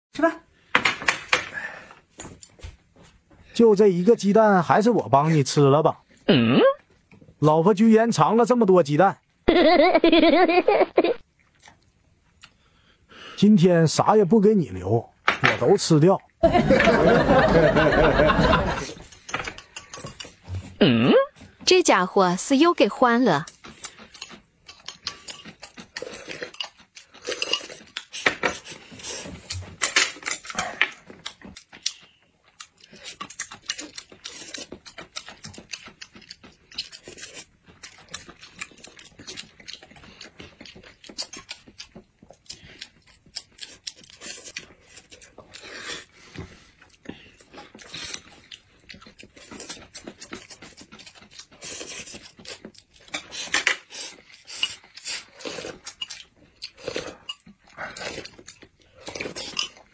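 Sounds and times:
chewing: 11.3s - 12.9s, 23.4s - 59.9s
chopsticks clicking on dishes: 19.1s - 20.4s.

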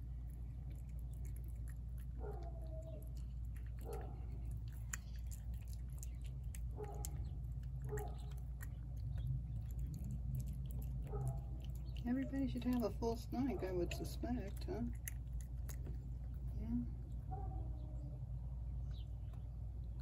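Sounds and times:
cat chewing wet food: 0.0s - 17.4s.

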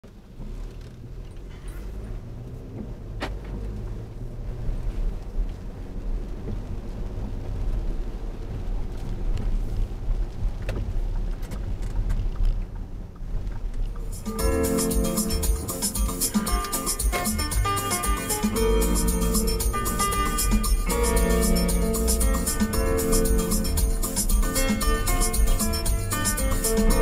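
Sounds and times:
engine and road rumble: 0.0s - 27.0s
music: 14.0s - 27.0s.

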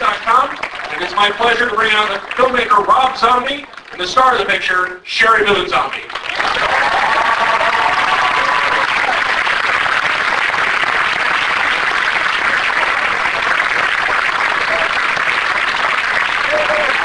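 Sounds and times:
audience applauding: 0.0s - 4.6s, 5.8s - 17.0s
audience cheering: 6.2s - 17.0s.

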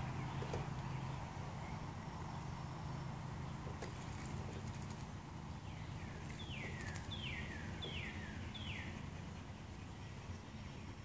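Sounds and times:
low hum: 0.0s - 11.0s
songbird whistling: 5.7s - 9.0s.

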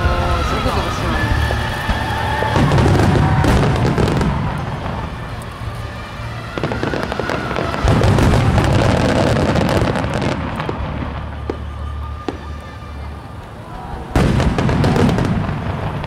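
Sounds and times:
firework shells booming: 0.0s - 12.6s, 14.1s - 16.0s
firework stars crackling: 0.0s - 16.0s.

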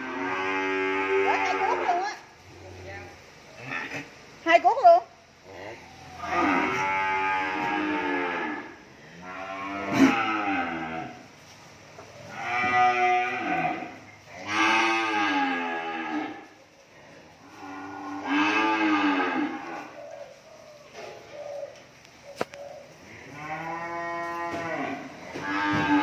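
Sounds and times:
young cattle mooing: 6.1s - 11.2s, 12.3s - 16.6s, 17.6s - 20.0s, 23.2s - 26.0s.

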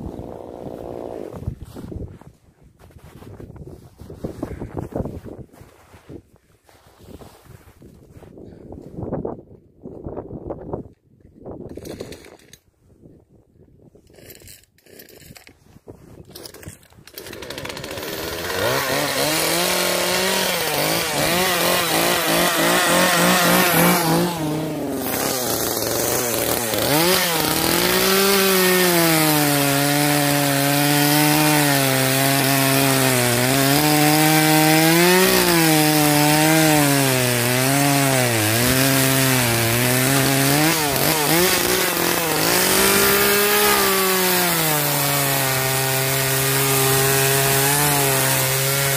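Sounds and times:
chainsaw cutting wood: 0.0s - 1.5s, 14.1s - 15.6s, 16.2s - 48.9s
chainsaw running at high revs: 16.3s - 48.9s.

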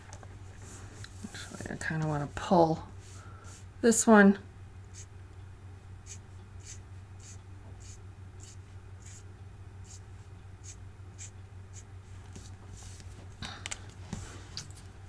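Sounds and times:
marker scratching on card: 4.9s - 5.1s, 6.0s - 9.2s, 9.8s - 10.0s, 10.6s - 12.5s.

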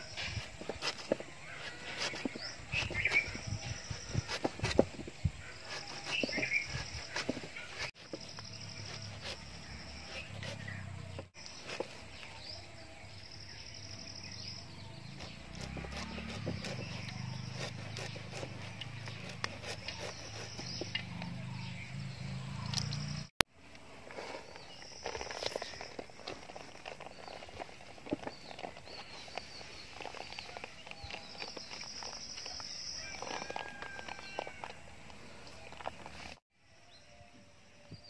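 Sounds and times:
knife scraping and clicking: 15.2s - 21.4s.

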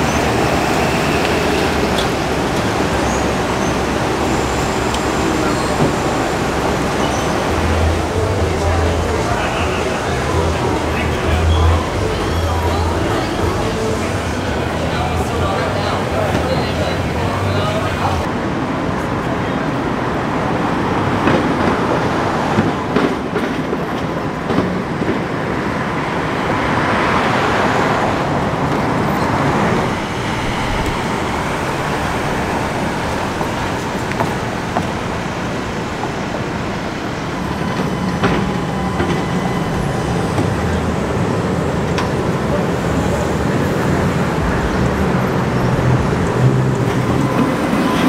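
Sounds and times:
city traffic noise: 0.0s - 48.0s
electric streetcar running: 0.0s - 48.0s
track clicks and clacks: 35.9s - 48.0s.

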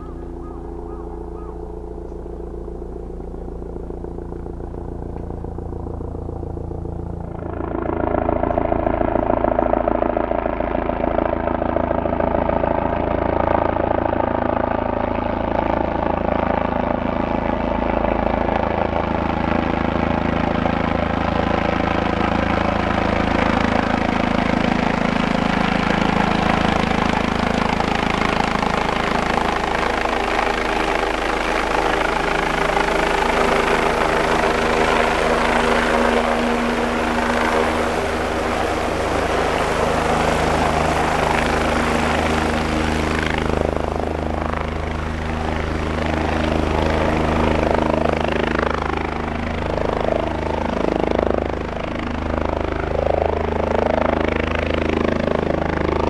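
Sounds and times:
helicopter rotor beating: 0.0s - 56.0s
thin high whine: 30.5s - 47.5s.

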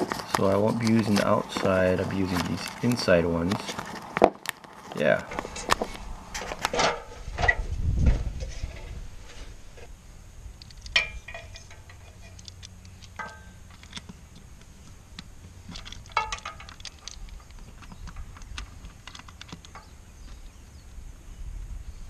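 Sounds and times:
steady low rumble: 5.1s - 22.0s
plastic and metal clicks: 15.2s - 19.9s.

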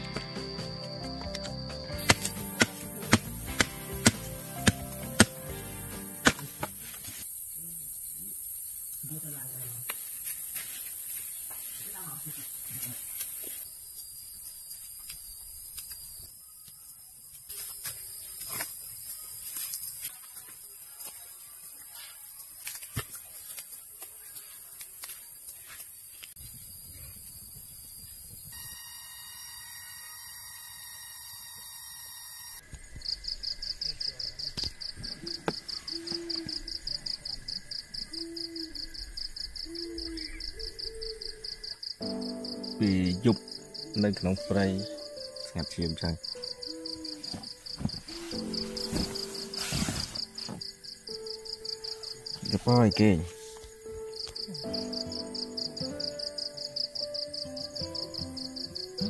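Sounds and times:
crickets chirping: 0.0s - 59.0s
campfire crackling and popping: 1.3s - 7.2s
high hiss and thin whine: 2.0s - 32.6s, 47.5s - 56.0s.

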